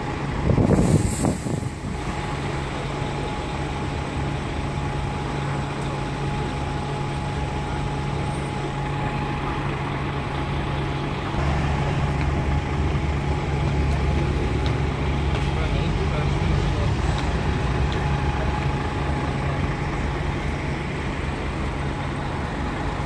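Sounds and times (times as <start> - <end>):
deeper engine rumble: 0.0 - 23.0
diesel engine idling: 0.0 - 23.0.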